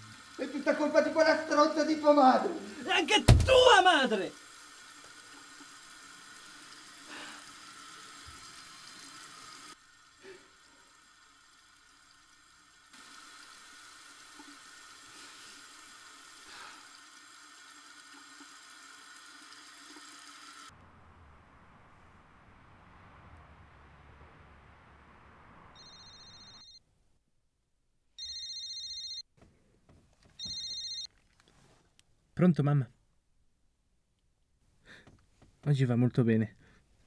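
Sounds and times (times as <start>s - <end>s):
faint steady hiss: 0.0s - 26.8s
low hum: 20.7s - 26.6s.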